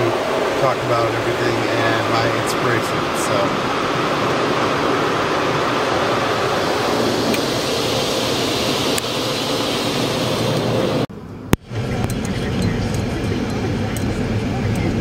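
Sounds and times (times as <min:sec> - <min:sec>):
car wash water jets rushing: 0:00.0 - 0:11.1.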